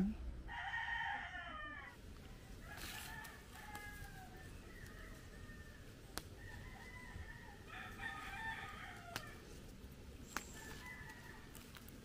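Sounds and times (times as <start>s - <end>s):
rooster crowing: 0.5s - 2.0s, 2.6s - 9.5s, 10.3s - 11.8s
plant stems snapping: 6.0s - 6.5s, 8.6s - 12.0s.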